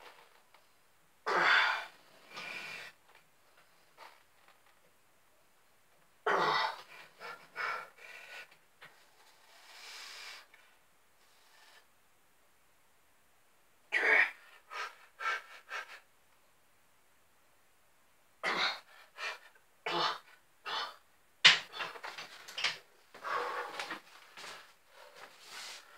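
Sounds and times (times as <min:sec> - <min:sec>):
man breathing hard: 0:23.2 - 0:25.9.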